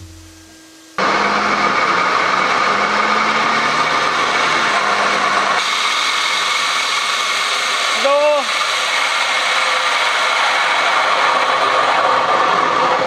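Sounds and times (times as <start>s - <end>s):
differential grinding rumble: 0.0s - 5.8s
drivetrain whine: 0.0s - 13.0s.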